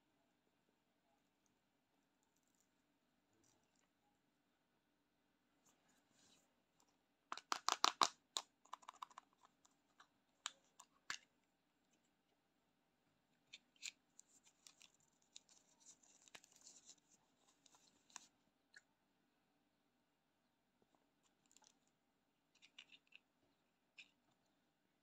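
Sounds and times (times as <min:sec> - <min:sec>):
fingers tapping plastic case: 0:07.4 - 0:09.2.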